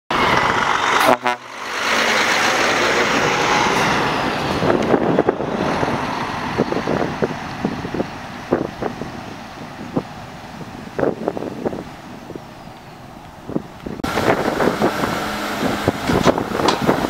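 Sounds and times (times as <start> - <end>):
truck driving past: 0.1 - 17.0
truck horn toot: 1.0 - 1.7.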